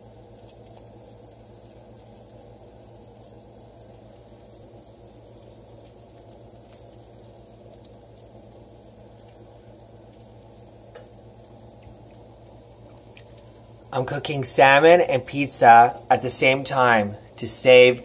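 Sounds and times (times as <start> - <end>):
oven sizzling and humming: 0.0 - 18.0
faint ticks: 12.8 - 13.5.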